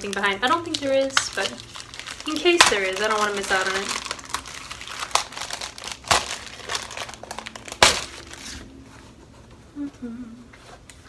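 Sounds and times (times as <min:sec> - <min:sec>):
plastic sleeve crinkling: 0:00.0 - 0:08.8.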